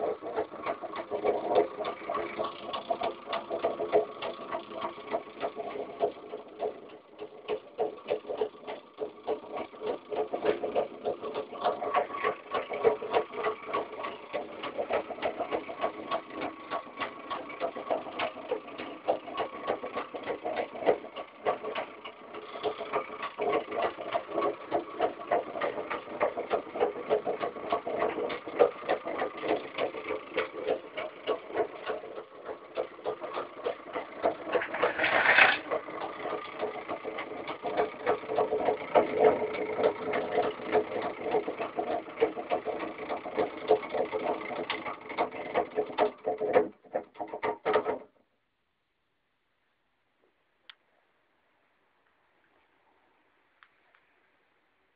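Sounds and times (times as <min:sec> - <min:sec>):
motor generator clicking and whining: 0:00.0 - 0:48.2
brief rasp: 0:34.6 - 0:35.7.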